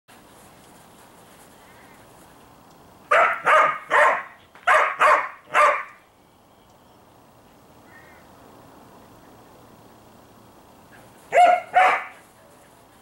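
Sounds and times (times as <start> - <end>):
dog barking: 3.1 - 6.0, 11.3 - 12.2.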